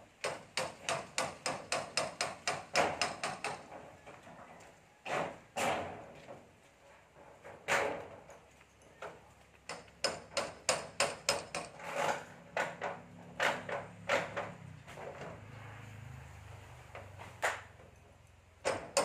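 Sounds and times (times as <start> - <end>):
hammer striking metal roofing: 0.0 - 4.0, 5.0 - 6.5, 7.4 - 8.3, 9.7 - 15.4, 18.6 - 19.0.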